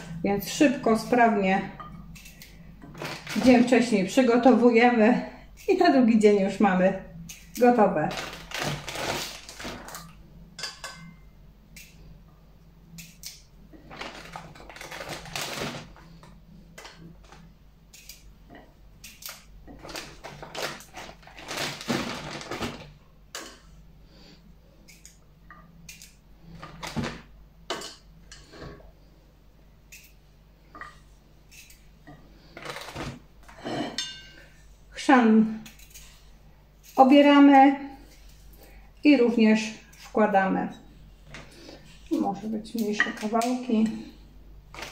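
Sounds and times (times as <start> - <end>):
plastic bag rustling: 2.9 - 3.9, 8.0 - 10.2, 13.8 - 16.3, 19.7 - 23.0, 32.5 - 33.6.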